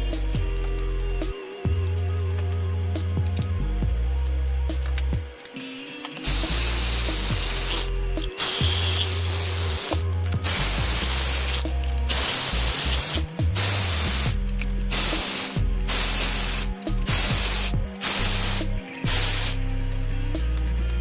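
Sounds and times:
background music with bass line: 0.0 - 21.0
spraying hiss: 6.2 - 19.6.

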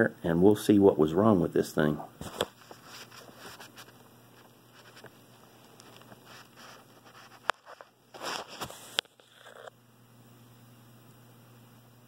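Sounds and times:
handling scrapes and rustles: 2.2 - 9.7.

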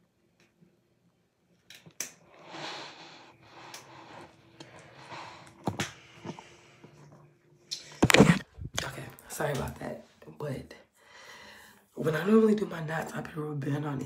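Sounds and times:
phone handling rustling: 7.9 - 8.8.

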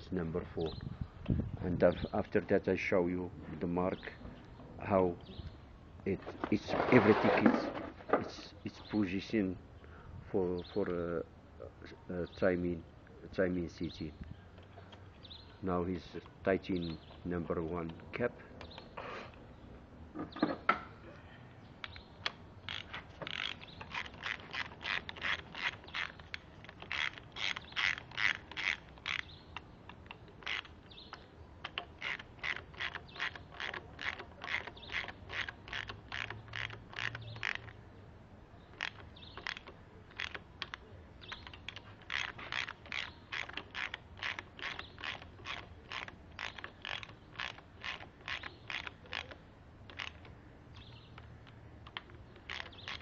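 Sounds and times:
ratchet wrench clicking: 21.8 - 37.8, 38.7 - 53.0.

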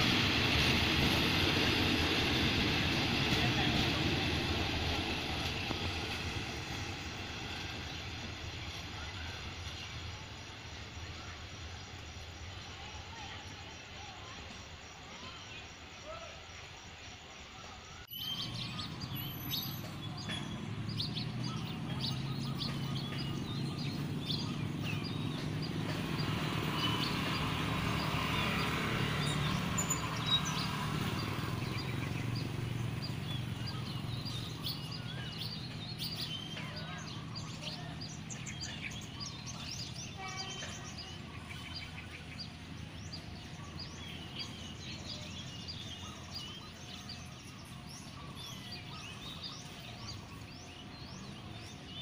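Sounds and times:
small birds chirping: 18.0 - 52.0.

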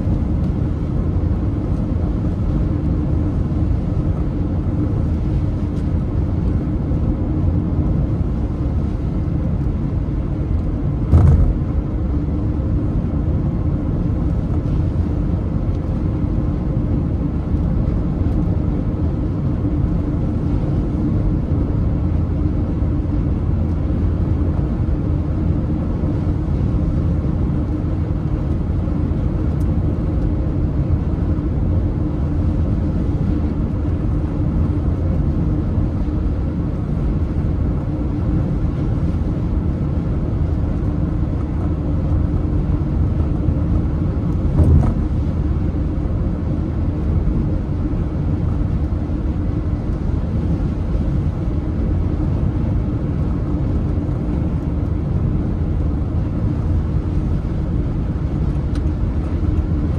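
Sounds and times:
car road and wind rumble: 0.0 - 59.9
brief thump: 11.1 - 11.6, 44.5 - 45.0.

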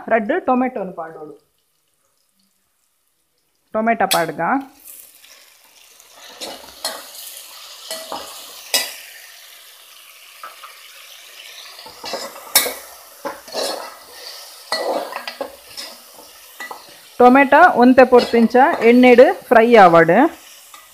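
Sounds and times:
vegetables sizzling in oil: 0.0 - 20.9
spoon clinking and scraping pot: 6.2 - 9.0, 11.8 - 17.1, 18.0 - 19.2.

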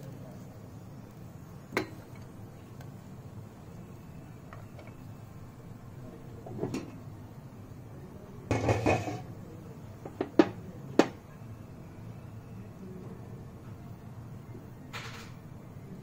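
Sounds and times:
cookware rattling clatter: 8.5 - 9.2.

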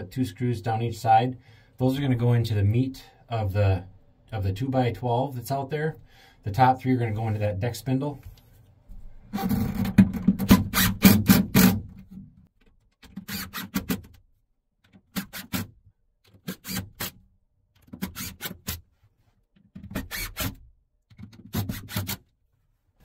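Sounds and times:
cordless drill driving screws into wood: 10.4 - 11.9, 13.1 - 14.1, 15.1 - 15.7, 16.3 - 17.2, 17.8 - 18.8, 19.9 - 20.6, 21.4 - 22.2.

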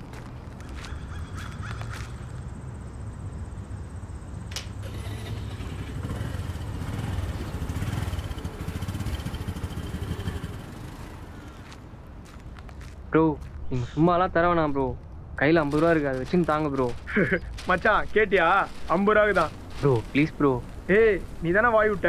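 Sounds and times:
scooter engine running: 4.8 - 11.7.

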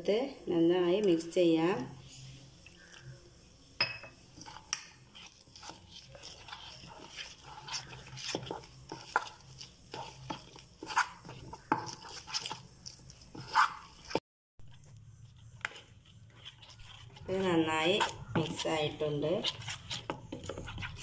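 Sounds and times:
spoon clinking against bowl: 3.8 - 4.9
metal spoon scraping a steel bowl: 4.3 - 14.2, 15.6 - 21.0.

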